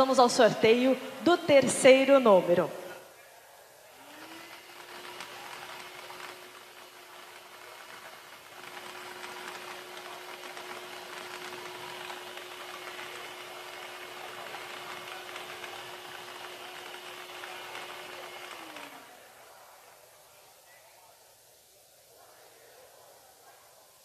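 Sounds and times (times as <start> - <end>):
motor hum: 3.9 - 19.2.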